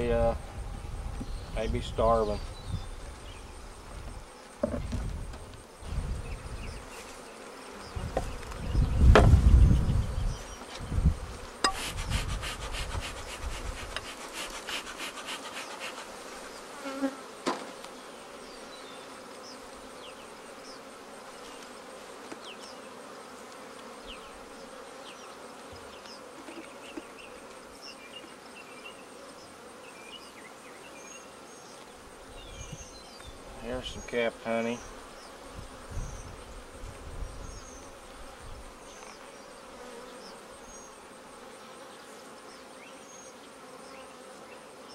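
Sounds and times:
bees buzzing: 0:00.0 - 0:44.9
low knocks from hive handling: 0:03.9 - 0:05.6, 0:08.0 - 0:09.5, 0:17.4 - 0:18.0.

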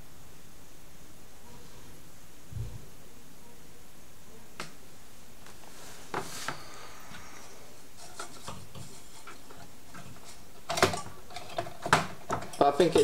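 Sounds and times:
steady hiss: 0:00.0 - 0:13.0
handling knocks and rubbing: 0:05.4 - 0:13.0.

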